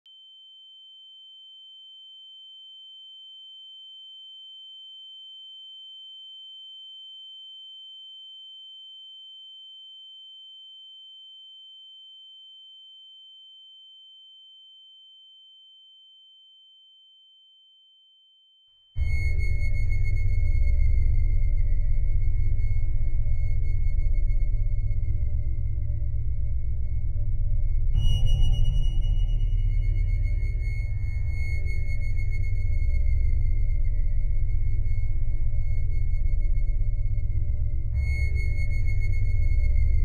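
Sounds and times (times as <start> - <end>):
fainter lower tone: 0.1 - 40.0.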